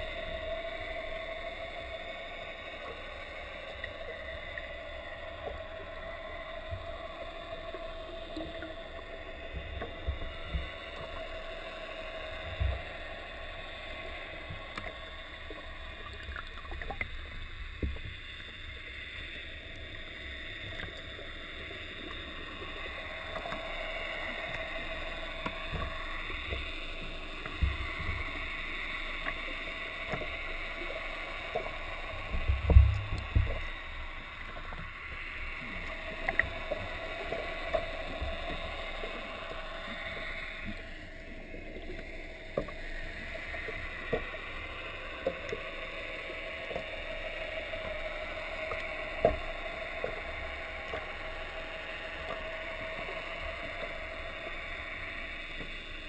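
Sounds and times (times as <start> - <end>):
faint hum: 0.0 - 56.0
muffled underwater wash: 0.0 - 56.0.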